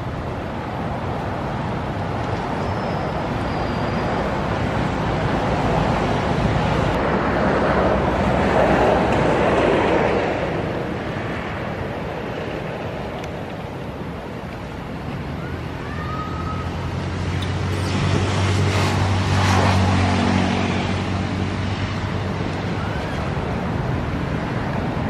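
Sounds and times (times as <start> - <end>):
traffic noise: 0.0 - 25.0.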